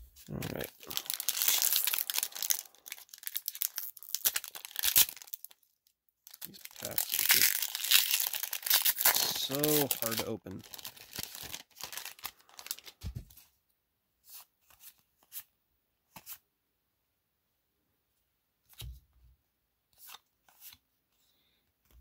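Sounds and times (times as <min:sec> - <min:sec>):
foil wrapper tearing and crinkling: 0:00.5 - 0:05.7, 0:06.3 - 0:13.0.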